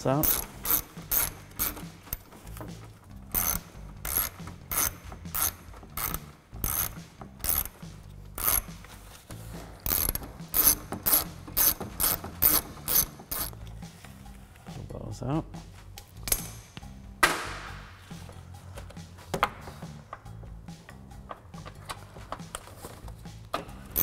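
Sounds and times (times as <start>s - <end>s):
ratchet pawl clicking: 0.2s - 2.3s, 3.3s - 7.8s, 8.4s - 8.7s, 9.9s - 13.6s.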